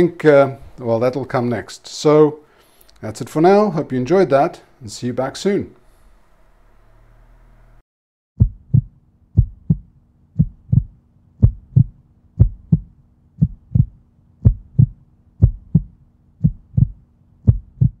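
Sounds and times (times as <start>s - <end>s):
heartbeat thumps: 8.4s - 18.0s.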